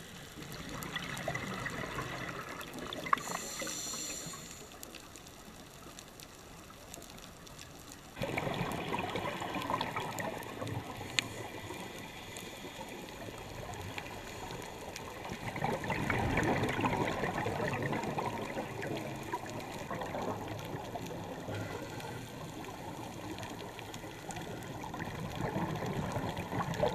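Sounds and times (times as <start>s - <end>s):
underwater breath bubbling: 0.5s - 4.9s.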